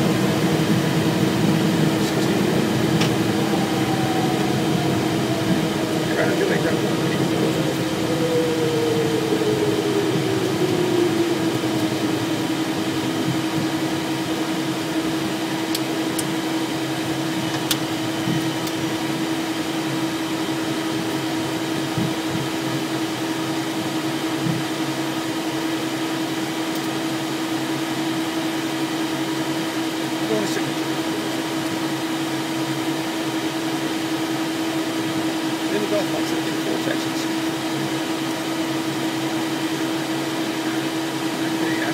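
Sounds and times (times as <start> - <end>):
falling engine tone: 0.0 - 16.1
jet engines humming: 0.0 - 41.9
cabin air rush: 0.1 - 15.5.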